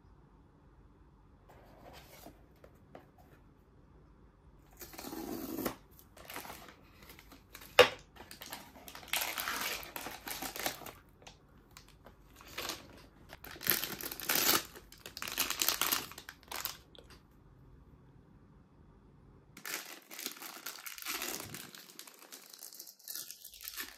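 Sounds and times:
cardboard packaging rustling: 4.8s - 16.9s, 19.6s - 23.9s
foil wrapper crinkling: 6.1s - 17.1s, 19.6s - 23.9s.

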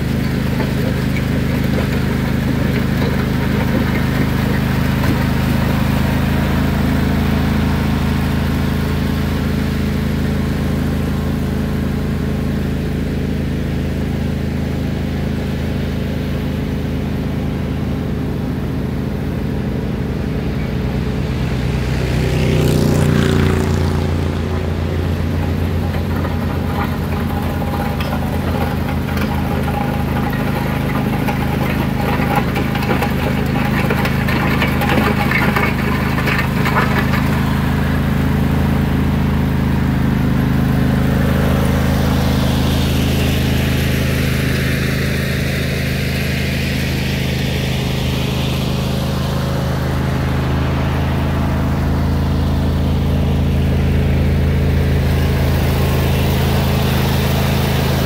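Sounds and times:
blade scraping gravel: 0.0s - 7.0s, 22.5s - 38.5s
lawn tractor engine running: 0.0s - 58.0s.

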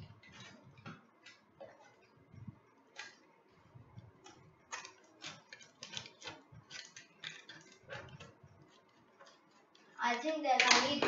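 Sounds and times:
tool scraping packing tape: 4.7s - 9.8s.

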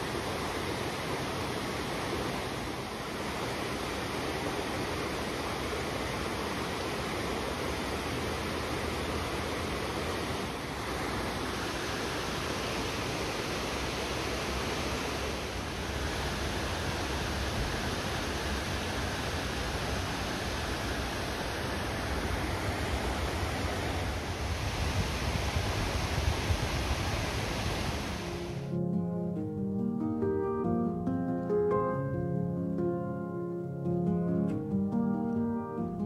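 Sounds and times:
stream rushing over boulders: 0.0s - 28.7s.

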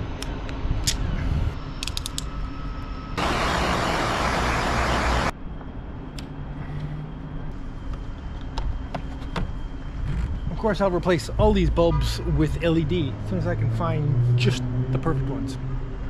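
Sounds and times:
low background rumble: 4.6s - 16.0s.

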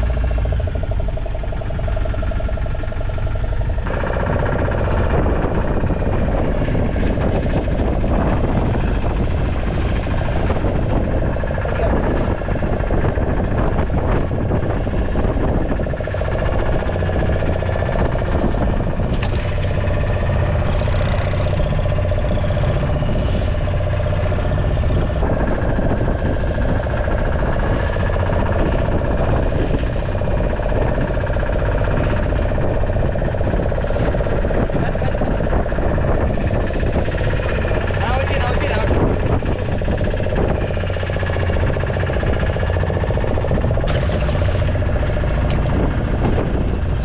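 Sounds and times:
boat engine humming: 0.0s - 47.0s.

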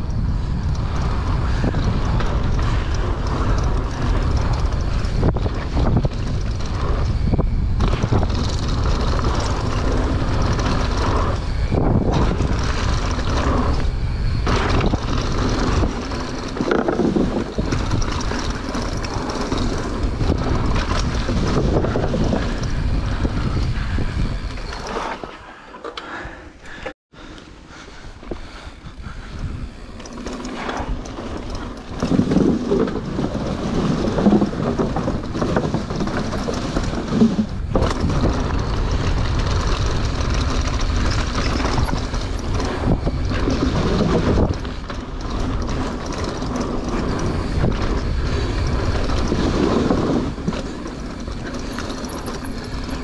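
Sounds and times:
wind buffeting microphone: 0.0s - 25.3s, 26.7s - 53.0s
tyres rumbling on dirt trail: 0.0s - 53.0s.

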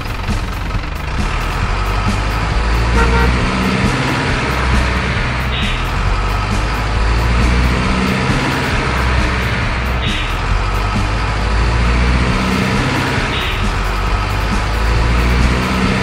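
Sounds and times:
dump truck engine rumbling: 0.0s - 16.0s
brief horn-like tone: 3.0s - 3.5s.

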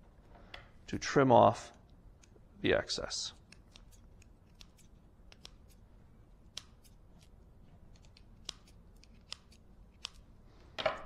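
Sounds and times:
scissors snipping tape: 3.4s - 5.8s, 6.5s - 10.3s.

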